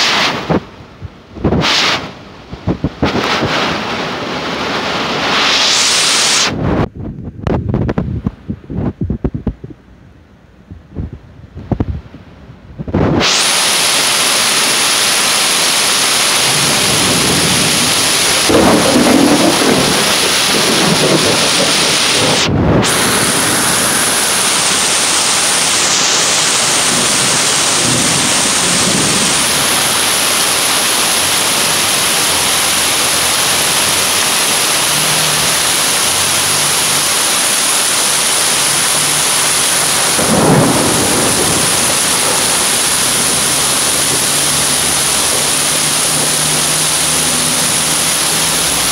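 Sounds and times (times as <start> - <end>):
heavy rain pouring: 0.0 - 9.2, 11.6 - 48.9
low rush: 0.0 - 48.9.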